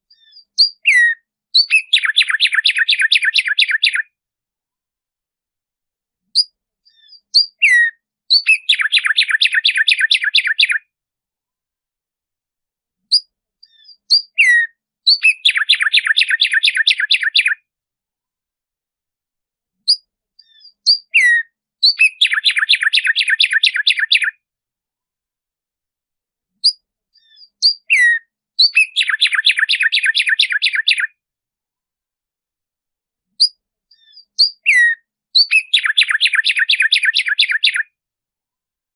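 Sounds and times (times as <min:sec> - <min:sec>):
sparrow singing: 0:00.0 - 0:04.1, 0:06.3 - 0:10.9, 0:13.0 - 0:17.6, 0:19.8 - 0:24.4, 0:26.6 - 0:31.2, 0:33.3 - 0:37.9.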